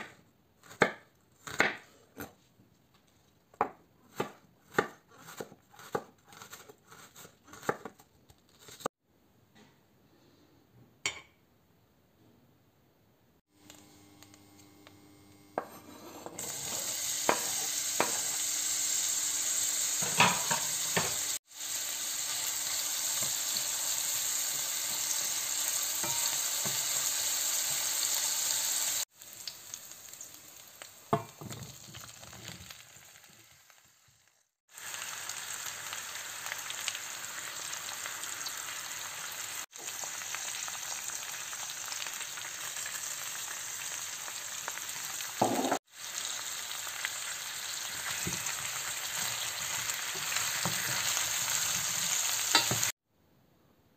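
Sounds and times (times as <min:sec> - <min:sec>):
vegetables sizzling in oil: 0:13.6 - 0:53.0
wooden spoon knocking on pan: 0:45.4 - 0:45.8.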